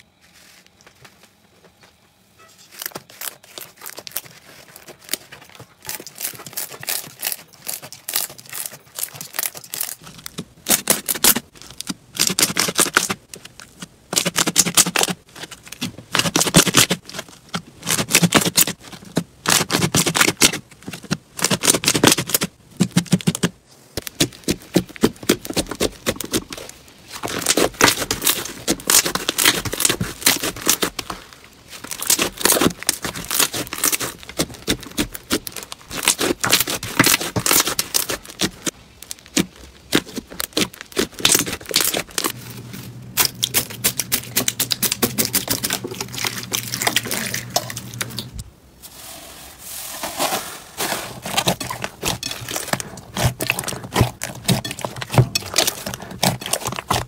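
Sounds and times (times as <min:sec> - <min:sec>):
slime crackling and popping: 0:02.6 - 0:42.4, 0:51.2 - 0:57.0.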